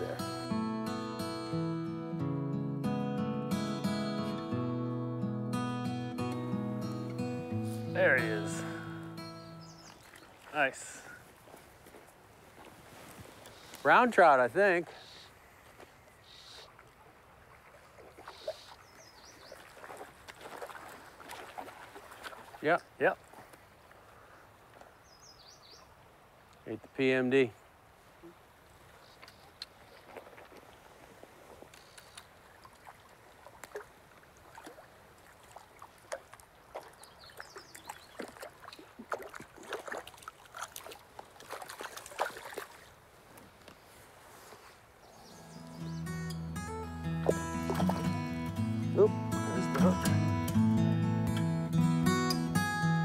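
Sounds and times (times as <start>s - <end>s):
running river water: 0.0s - 1.6s, 6.1s - 51.7s
fish splashing: 17.6s - 18.8s, 19.5s - 22.6s, 29.5s - 43.0s, 47.2s - 48.1s.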